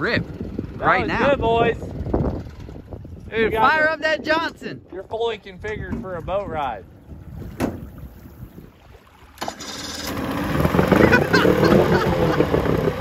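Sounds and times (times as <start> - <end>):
outboard motor starting and running: 7.0 - 13.0.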